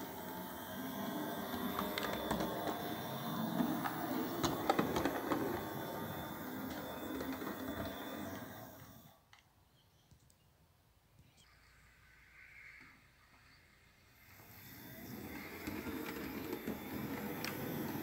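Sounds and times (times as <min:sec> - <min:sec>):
wheels clicking over rail joints: 0:00.0 - 0:09.0, 0:15.1 - 0:18.0
model train motor whirring: 0:00.0 - 0:09.3, 0:11.5 - 0:18.0.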